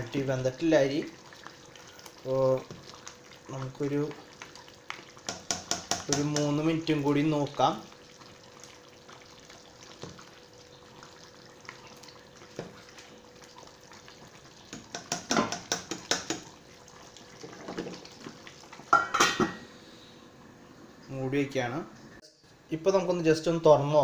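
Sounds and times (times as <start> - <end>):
faint steady hum: 18.2 - 24.0
metal lid clanking on pot: 18.9 - 19.6.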